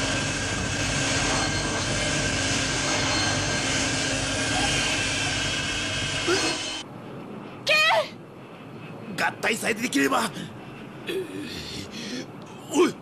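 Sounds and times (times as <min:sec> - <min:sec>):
cartoon jet engine roar: 0:00.0 - 0:06.8.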